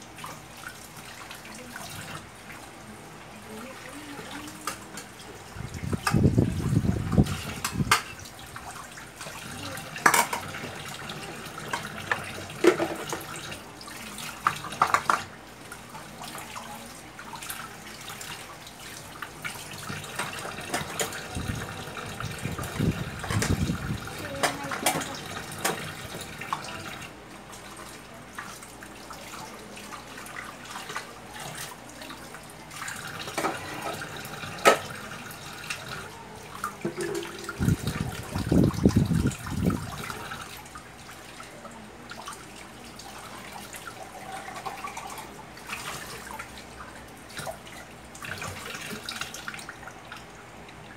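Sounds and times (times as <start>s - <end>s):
dishes clinking: 36.8s - 37.6s
tap running into steel sink: 36.8s - 38.0s.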